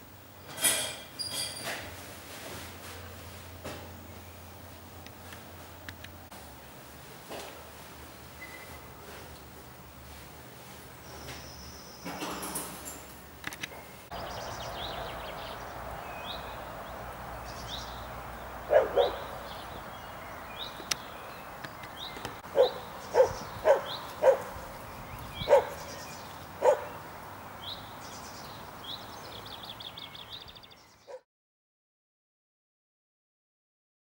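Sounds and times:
small birds chirping: 0:13.8 - 0:31.2
animal barking: 0:18.5 - 0:19.9, 0:22.4 - 0:24.8, 0:25.4 - 0:26.0, 0:26.6 - 0:27.0.

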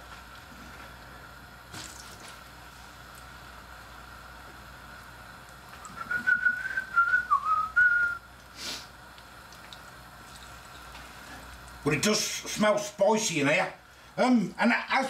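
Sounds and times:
person whistling a tune: 0:06.0 - 0:08.2.

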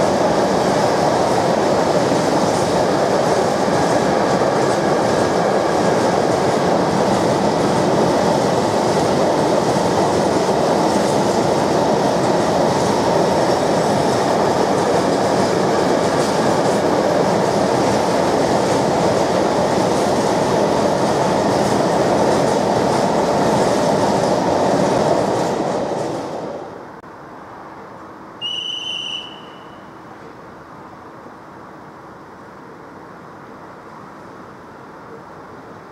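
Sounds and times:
freight train rolling past: 0:00.0 - 0:35.9.

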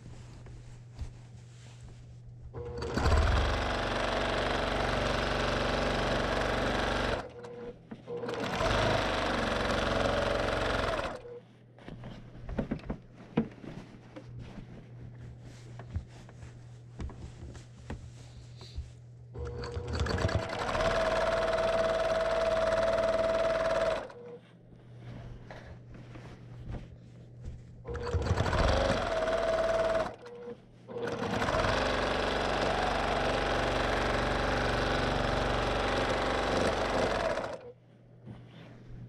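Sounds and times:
quilting machine stitching: 0:02.6 - 0:11.4, 0:19.3 - 0:24.4, 0:27.9 - 0:37.8.

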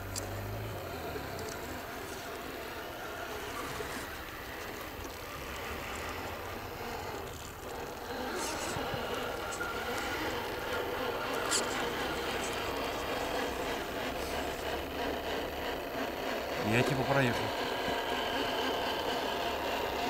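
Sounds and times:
sharp clicks: 0:00.0 - 0:00.4
electric motor whine: 0:00.0 - 0:20.0.

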